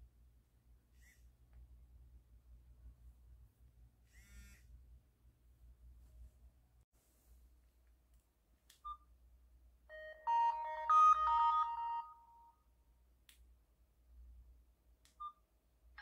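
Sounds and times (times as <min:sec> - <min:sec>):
chiming startup melody: 0:09.9 - 0:12.5
smartwatch beep: 0:09.9 - 0:12.5.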